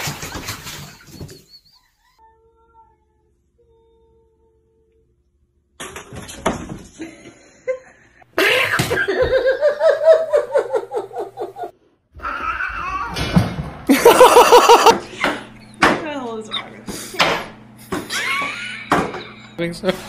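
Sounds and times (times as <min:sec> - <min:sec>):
person laughing hard: 0:07.0 - 0:11.7, 0:13.9 - 0:15.5, 0:18.1 - 0:19.6.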